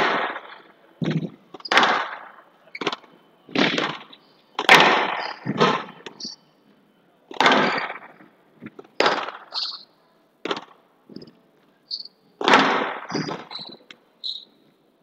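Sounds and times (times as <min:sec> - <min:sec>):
ball hitting court walls: 0:00.0 - 0:02.2, 0:02.8 - 0:06.0, 0:07.3 - 0:09.5, 0:10.4 - 0:10.8, 0:12.4 - 0:13.8
shoes squeaking on court floor: 0:13.1 - 0:14.5.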